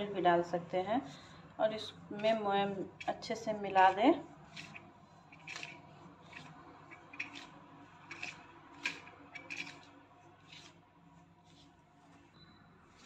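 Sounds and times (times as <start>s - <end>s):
fingers scraping flour on steel: 2.1s - 10.8s.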